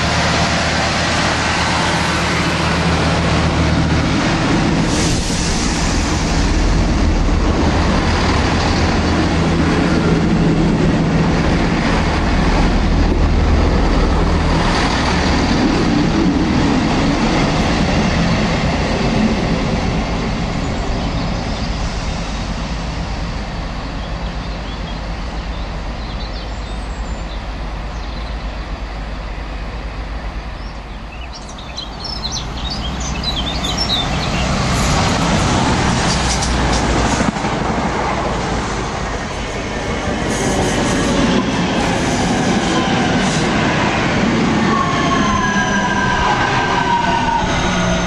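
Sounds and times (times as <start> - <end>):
diesel train engine drone: 0.0 - 48.0
diesel train passing at speed: 0.0 - 48.0
electric train whining: 32.4 - 48.0.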